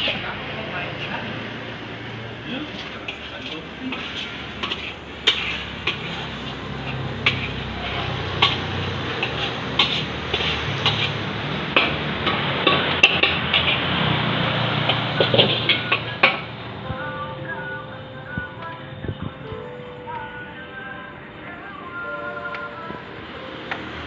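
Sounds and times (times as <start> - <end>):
utensils clattering on pots: 2.8 - 16.5
music: 15.3 - 24.0.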